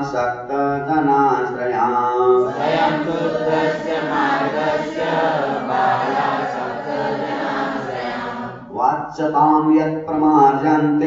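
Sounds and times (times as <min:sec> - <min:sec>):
voices chanting in unison: 0:02.2 - 0:08.8.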